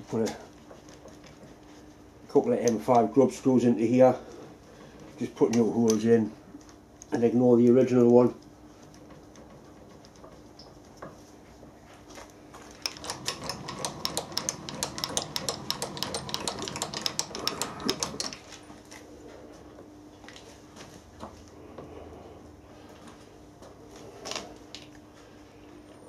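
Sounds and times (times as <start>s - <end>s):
faint machine hum: 0.0s - 26.0s
sharp mechanical clicks: 12.8s - 18.4s.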